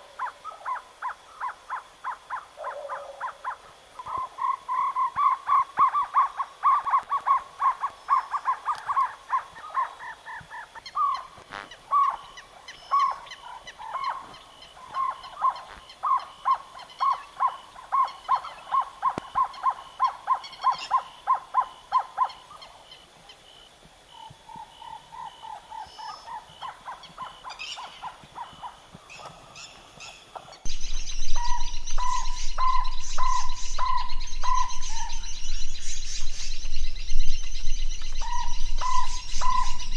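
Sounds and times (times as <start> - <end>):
small birds chirping: 0.0 - 39.9
owlet calling repeated notes: 30.7 - 35.4, 38.1 - 39.9.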